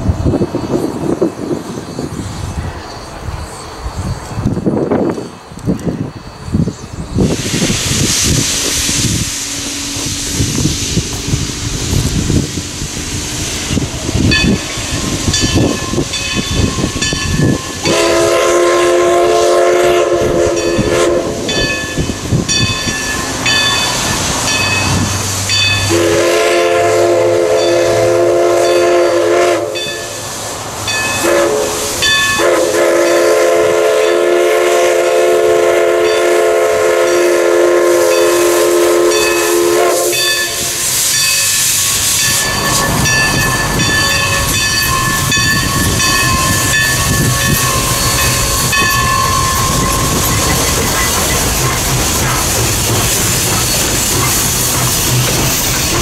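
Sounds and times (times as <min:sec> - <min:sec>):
steam hissing: 0:00.0 - 0:56.0
steam locomotive whistle blasts: 0:13.0 - 0:25.0, 0:25.6 - 0:30.2, 0:31.0 - 0:51.4
bell ringing: 0:15.3 - 0:17.9, 0:21.5 - 0:25.9, 0:30.9 - 0:31.3, 0:32.0 - 0:32.4, 0:40.1 - 0:41.6, 0:42.2 - 0:51.5.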